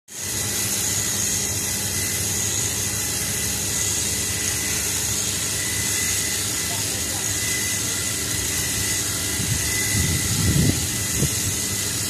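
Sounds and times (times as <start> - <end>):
hedge trimmer cutting shrubs: 0.1 - 12.0.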